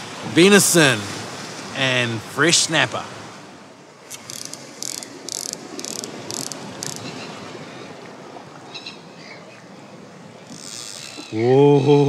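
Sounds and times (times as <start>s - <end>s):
surf washing on rocks: 0.0s - 8.7s
fishing reel buzzing: 4.1s - 7.1s, 10.5s - 11.3s.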